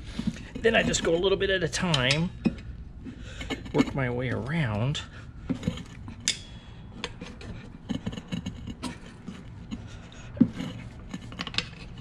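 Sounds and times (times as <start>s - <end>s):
rubber tire scraping on rim: 0.0s - 1.4s, 7.2s - 12.0s.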